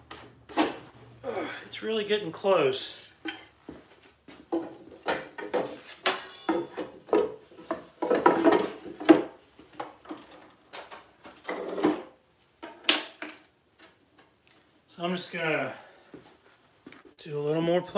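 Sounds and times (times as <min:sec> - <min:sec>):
wooden drawer and tools clattering: 0:04.3 - 0:14.0.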